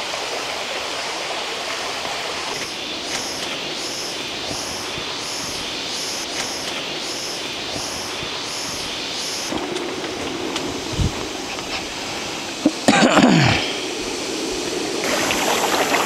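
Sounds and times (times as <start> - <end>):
stream rushing: 0.0 - 16.0
high pulsing call: 2.5 - 12.9
low hum: 2.5 - 16.0.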